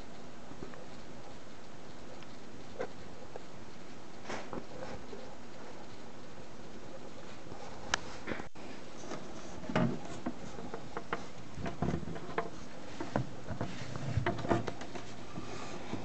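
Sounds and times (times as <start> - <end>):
steady background hiss: 0.0 - 16.0
small clicks and knocks: 7.9 - 16.0.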